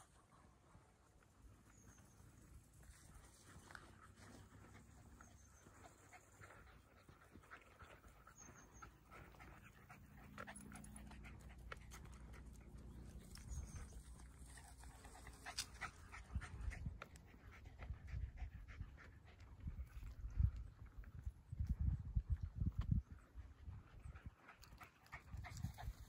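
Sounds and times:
dog panting: 3.4s - 20.2s.

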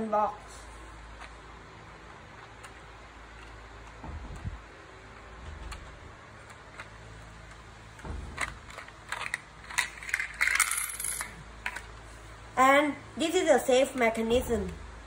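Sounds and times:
plastic bricks clicking and rattling: 8.3s - 11.9s.

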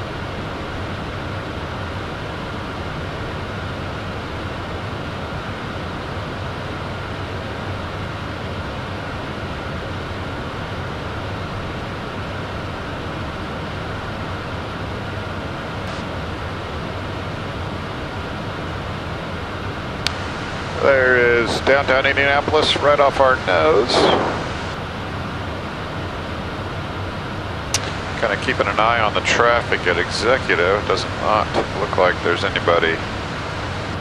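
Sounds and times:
low hum: 18.6s - 25.1s
jet cockpit rush: 20.1s - 24.8s, 27.8s - 34.0s.

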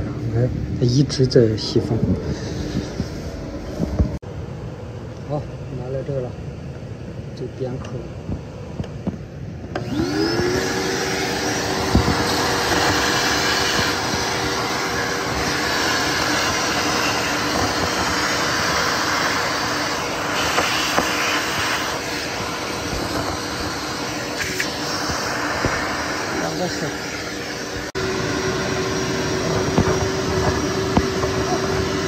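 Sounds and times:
vacuum cleaner sucking water: 9.7s - 32.0s.

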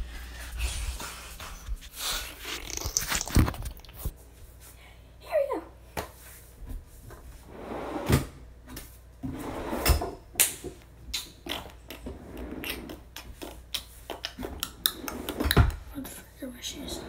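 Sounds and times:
rustling and scraping: 0.0s - 4.6s.

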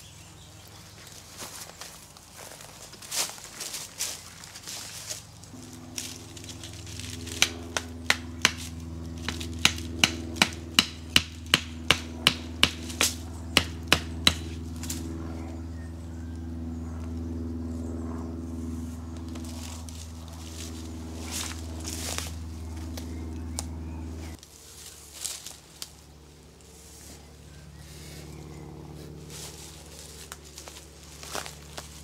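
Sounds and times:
steady low hum: 0.0s - 32.0s
hammering tent pegs: 7.0s - 14.6s.

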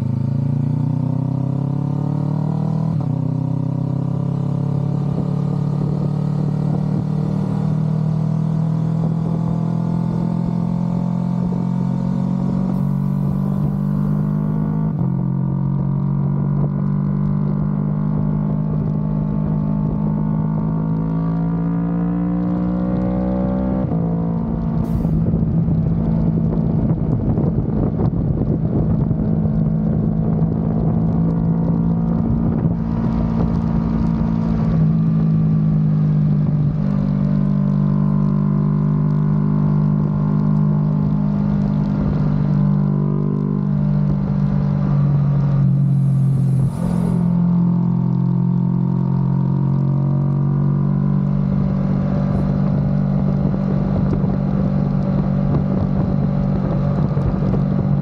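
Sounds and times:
motorcycle engine accelerating: 0.0s - 58.0s
rushing wind noise: 23.8s - 35.1s, 43.9s - 47.5s, 51.4s - 58.0s.

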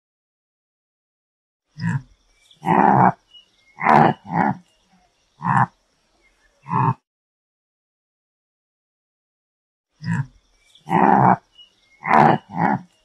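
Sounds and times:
antelope calling: 1.8s - 5.8s, 6.6s - 7.0s, 10.0s - 13.0s.

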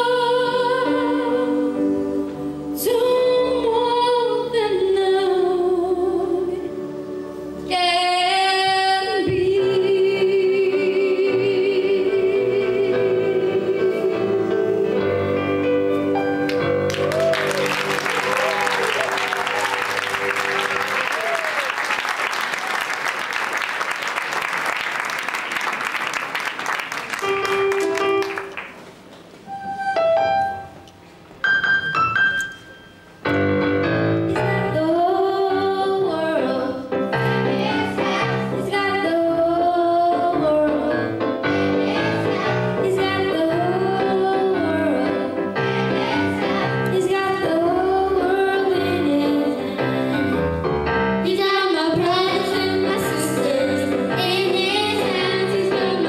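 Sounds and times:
girl singing into microphone: 0.0s - 6.8s, 7.6s - 14.7s, 34.3s - 41.0s, 41.9s - 45.4s, 46.9s - 49.8s, 51.2s - 56.0s
applause: 16.5s - 28.9s
keyboard notes: 27.2s - 28.8s, 29.4s - 56.0s.

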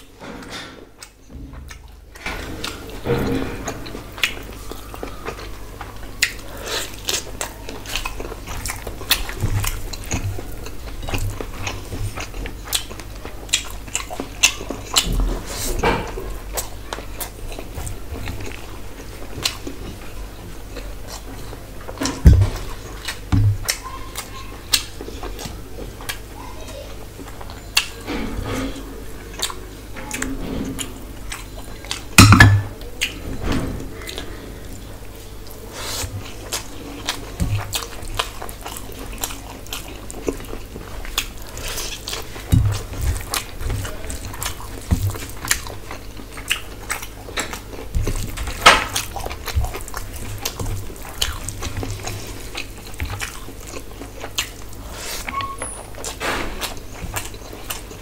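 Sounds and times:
wet chewing and lip smacking: 3.7s - 26.4s, 29.3s - 32.2s, 35.4s - 58.0s
dishes knocking on wooden table: 32.2s - 32.7s.

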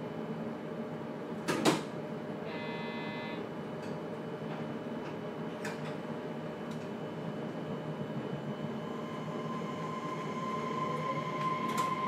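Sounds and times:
train car steady hum: 0.0s - 12.0s
short electric buzzer: 2.5s - 3.4s.

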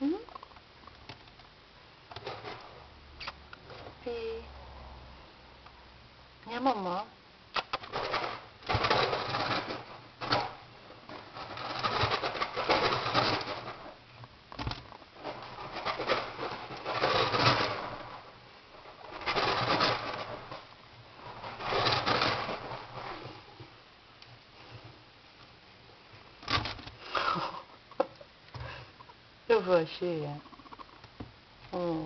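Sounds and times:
guinea pig purring: 29.0s - 31.1s.

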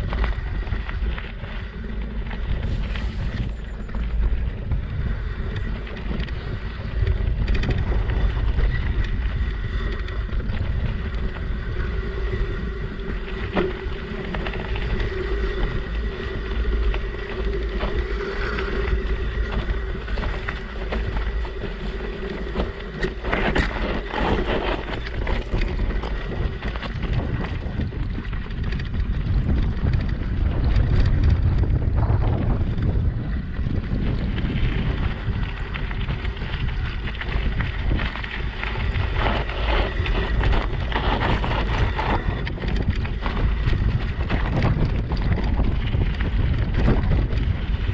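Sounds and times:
tyres crunching on gravel: 0.0s - 4.8s, 5.4s - 28.3s
bike rattling and knocking: 0.0s - 47.9s
wind buffeting microphone: 0.0s - 47.9s.

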